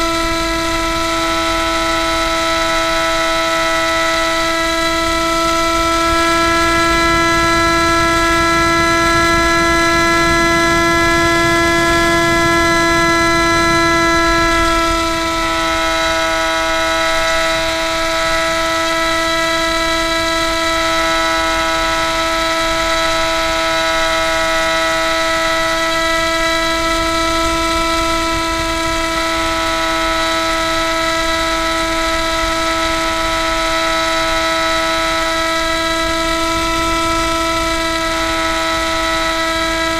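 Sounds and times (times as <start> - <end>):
model plane propeller whine: 0.0 - 39.9
wind rumble: 4.4 - 20.8.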